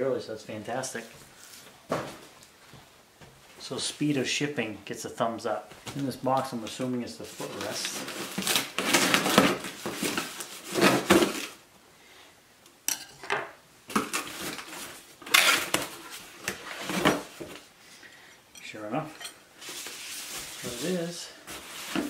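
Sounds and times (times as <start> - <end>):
packaging rustling: 7.2 - 11.6, 13.9 - 17.7, 19.6 - 22.0
knife slitting packing tape: 14.0 - 16.8.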